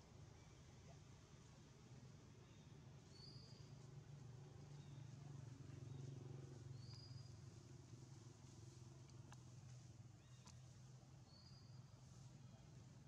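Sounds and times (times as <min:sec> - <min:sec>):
faint clicks: 0:09.0 - 0:09.8.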